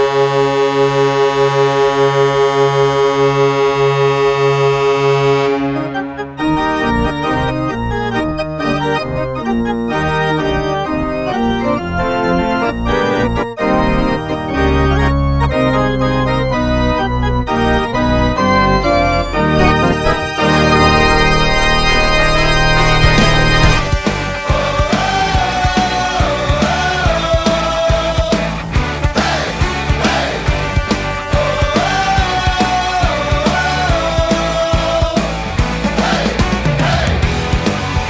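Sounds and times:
pulsing goal horn blast: 0:00.0 - 0:09.6, 0:17.4 - 0:35.7
organ music: 0:00.0 - 0:38.0.

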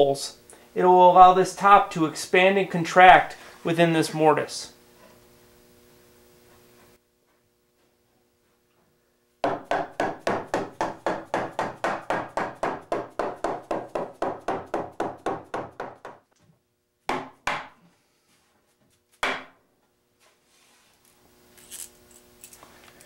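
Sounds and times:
rubber mallet knocking wood: 0:09.4 - 0:16.3, 0:17.1 - 0:17.8, 0:19.2 - 0:19.6.

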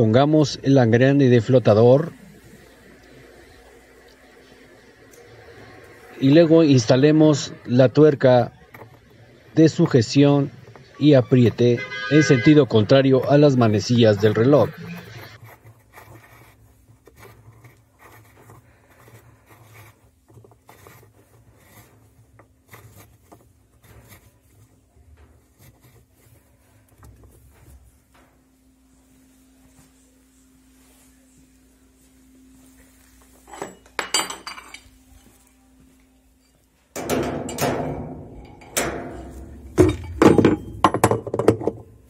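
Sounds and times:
faint metallic clicks and rubbing: 0:14.8 - 0:28.5
metal knocking clatter: 0:37.0 - 0:41.8.

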